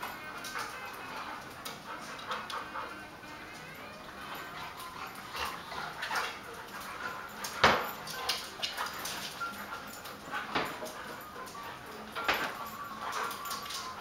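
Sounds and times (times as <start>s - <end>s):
dogs scuffling on tile floor: 0.0s - 14.0s
dog whimpers and yips: 0.2s - 14.0s.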